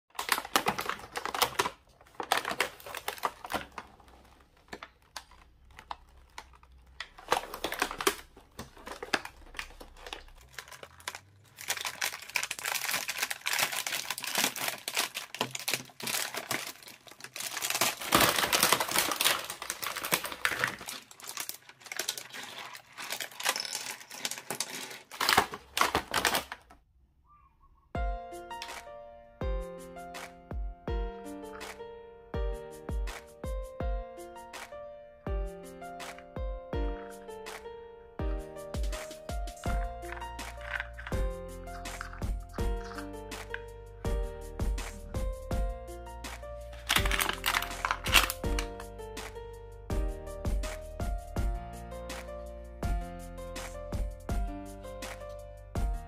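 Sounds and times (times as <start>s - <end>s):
plastic packaging crinkling: 0.1s - 26.8s, 38.7s - 43.7s, 46.6s - 49.0s.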